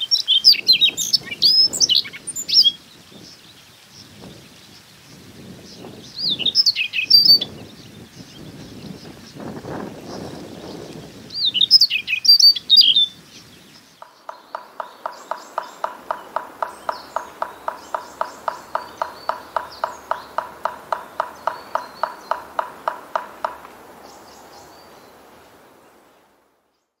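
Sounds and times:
bird warbling song: 0.0 - 27.0
woodpecker ringing call notes: 14.0 - 24.2.

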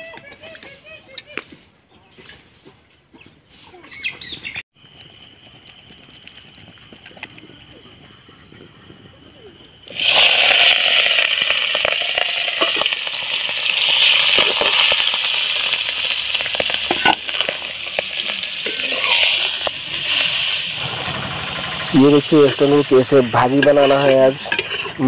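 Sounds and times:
shellfish sizzling in hot oil: 9.9 - 25.0
spatula scraping a pan: 23.4 - 25.0.

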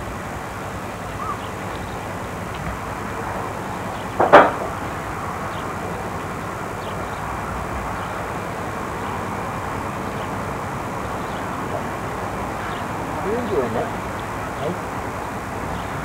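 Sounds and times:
outdoor hiss and rumble: 0.0 - 16.0
sharp pop: 4.2 - 4.7.

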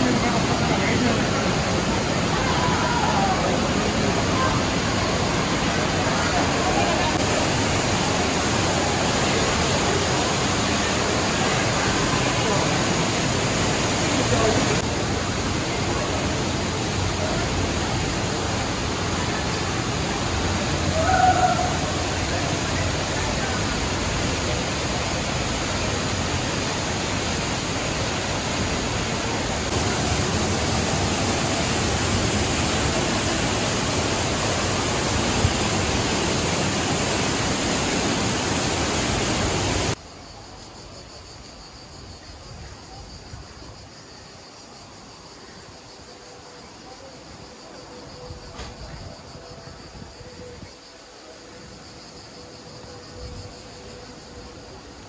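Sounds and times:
waterfall rushing: 0.0 - 40.0.

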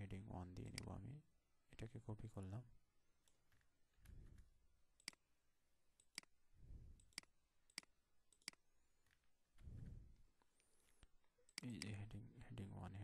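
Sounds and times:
soft low sounds: 0.0 - 13.0
computer mouse clicks: 0.6 - 0.9, 3.2 - 5.2, 6.0 - 6.4, 7.0 - 9.2.

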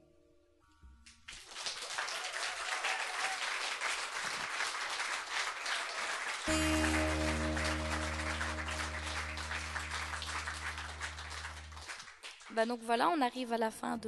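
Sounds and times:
audience applauding: 1.3 - 12.6
acoustic guitar chord ringing: 6.5 - 11.8.

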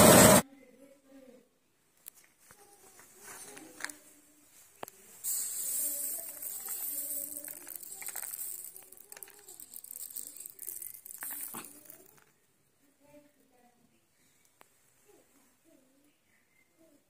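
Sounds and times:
dry seeds trickling through fingers: 4.8 - 12.3
sharp ticks: 5.3 - 12.3.

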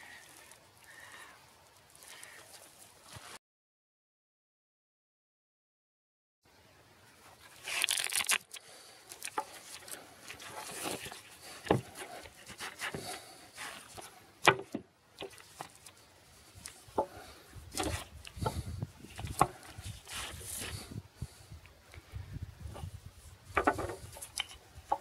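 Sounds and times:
fabric sheath rustling and scraping: 7.2 - 14.3, 15.2 - 20.9.

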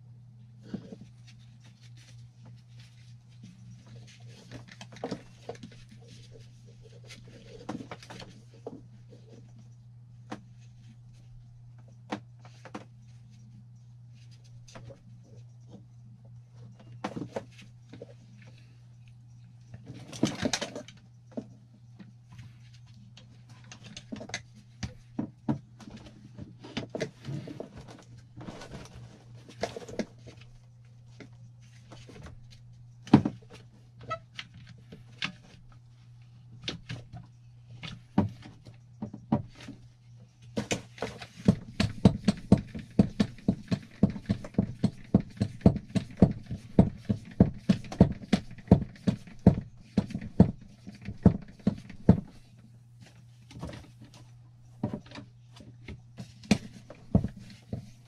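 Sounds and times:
steady low hum: 0.0 - 58.0
rustling: 0.6 - 9.8, 25.8 - 38.2.

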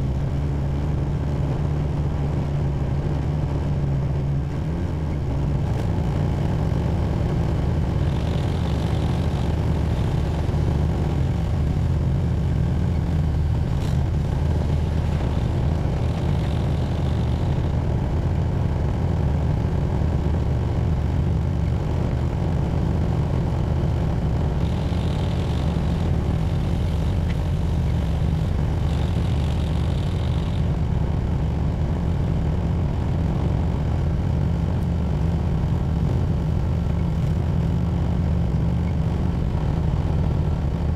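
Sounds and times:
tractor engine droning: 22.2 - 32.3.

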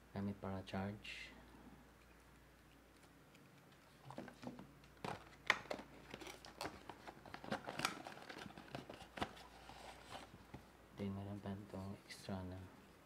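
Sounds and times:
cardboard box crinkling: 4.0 - 10.4.

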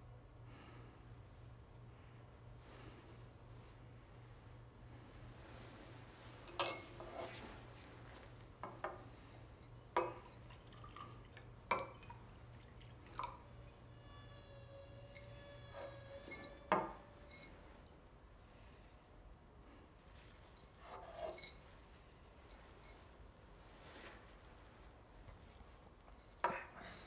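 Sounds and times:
faint low hum: 0.0 - 27.0
liquid dripping: 9.9 - 13.8.

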